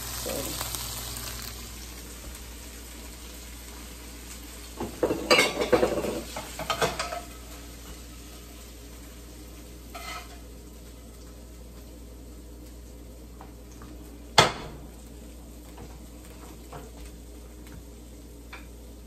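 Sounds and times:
utensils and skillet clattering: 0:04.8 - 0:07.5, 0:09.9 - 0:10.4.

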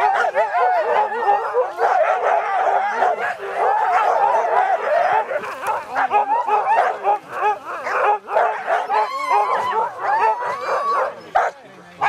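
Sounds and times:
dogs yipping barking and whining: 0:00.0 - 0:11.6.

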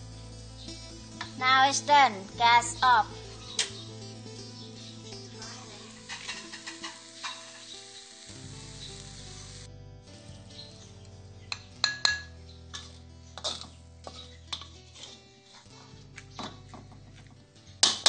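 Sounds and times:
food sizzling: 0:00.0 - 0:11.0
background music: 0:00.0 - 0:18.0
metal spatula scraping a wok: 0:05.7 - 0:08.2, 0:12.7 - 0:15.8.

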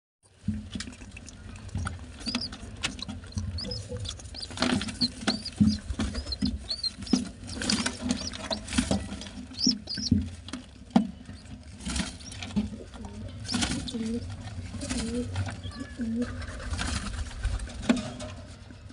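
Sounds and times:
squabs squeaking: 0:01.6 - 0:15.8.

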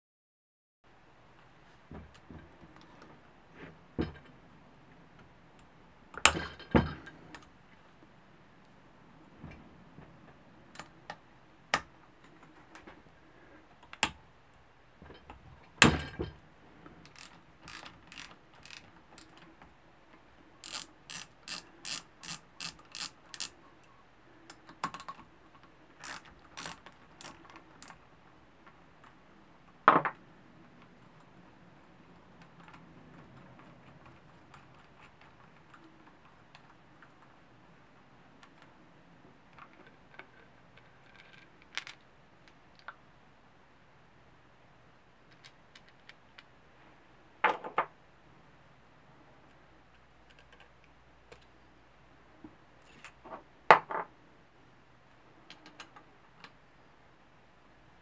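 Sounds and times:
ratchet clicks: 0:17.0 - 0:19.4, 0:20.6 - 0:23.6, 0:26.0 - 0:28.0
wrench clicking and clinking: 0:17.1 - 0:19.4, 0:20.6 - 0:23.5.

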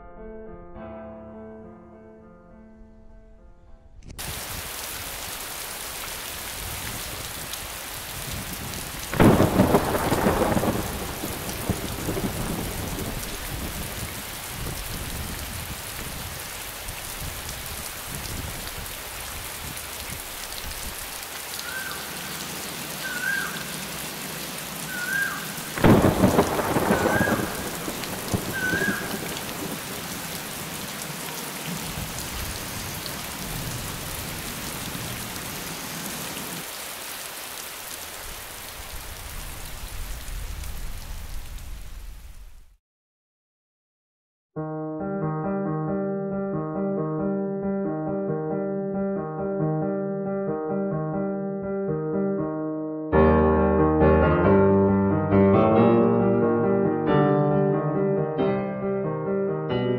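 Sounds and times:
steady rain: 0:04.2 - 0:42.8
thunder claps: 0:08.3 - 0:16.2, 0:25.7 - 0:30.3.

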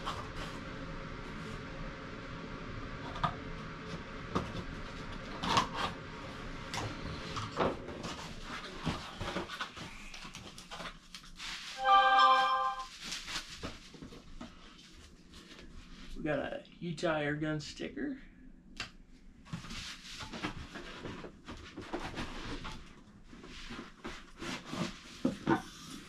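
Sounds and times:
cardboard rustling and scraping: 0:07.0 - 0:16.1, 0:19.5 - 0:26.0.

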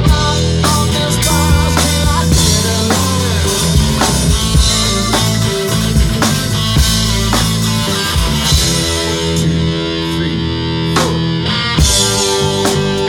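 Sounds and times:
rock band playing: 0:00.0 - 0:13.0
drum hits: 0:00.1 - 0:09.1.

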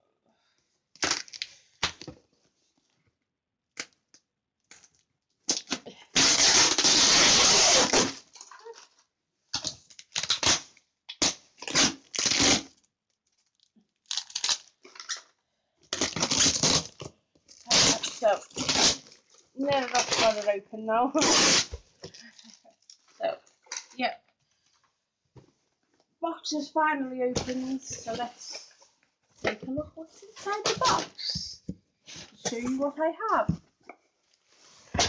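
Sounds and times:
packaging tape ripping: 0:01.0 - 0:02.0, 0:05.5 - 0:08.7, 0:09.5 - 0:12.7, 0:14.0 - 0:15.3, 0:15.9 - 0:19.2, 0:19.8 - 0:20.5, 0:21.2 - 0:21.8.

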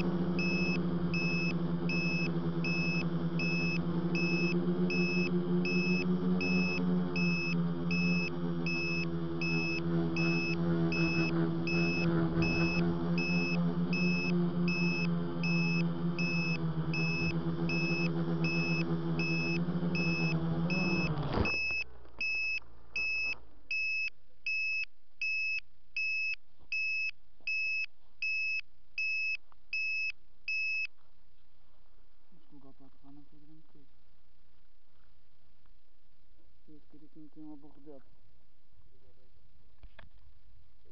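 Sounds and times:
drone motors humming: 0:00.0 - 0:24.1
high electronic beep: 0:00.0 - 0:30.9.

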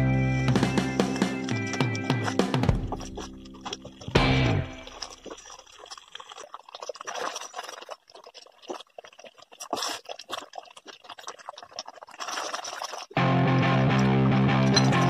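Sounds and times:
jam simmering and popping: 0:00.5 - 0:15.0.

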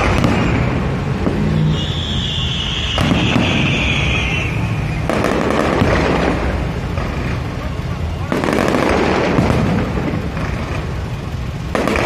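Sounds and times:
firework whistle: 0:00.0 - 0:09.6
firework crackling bursts: 0:00.0 - 0:12.0.

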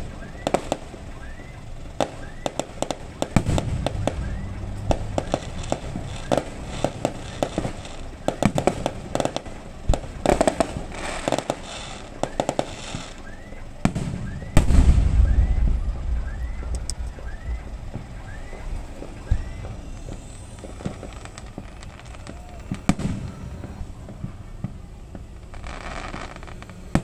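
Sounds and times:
fireworks popping and crackling: 0:00.0 - 0:27.0
loud firework bang: 0:00.0 - 0:27.0
long low rumble: 0:03.1 - 0:08.3, 0:14.0 - 0:25.5.

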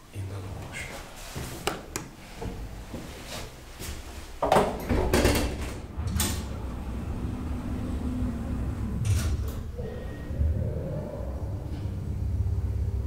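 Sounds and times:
elevator doors sliding shut: 0:04.7 - 0:13.0
elevator low hum: 0:04.8 - 0:13.0.

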